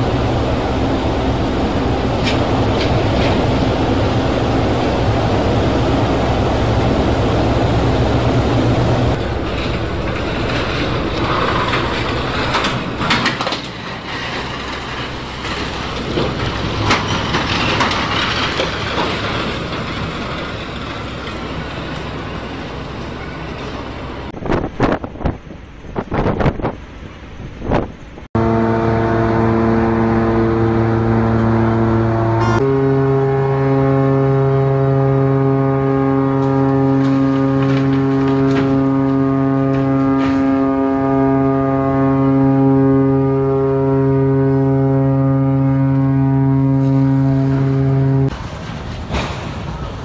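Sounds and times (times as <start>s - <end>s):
water noise: 0.0s - 25.8s, 26.8s - 50.0s
marine engine rumble: 0.0s - 50.0s
wind: 0.0s - 50.0s
boat knocking and scraping on hull: 35.9s - 42.2s.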